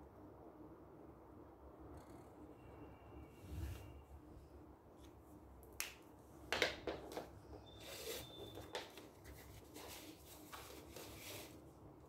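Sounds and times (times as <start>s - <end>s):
paper sliding on wooden table: 7.8s - 8.5s, 9.7s - 11.6s.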